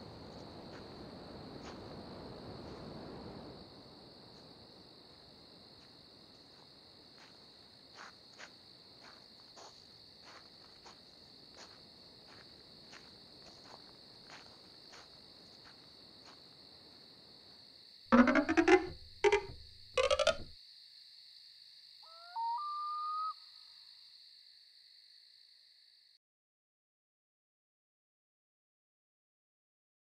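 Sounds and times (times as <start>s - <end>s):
crickets chirring: 0.0s - 26.1s
footsteps walking past: 5.8s - 16.5s.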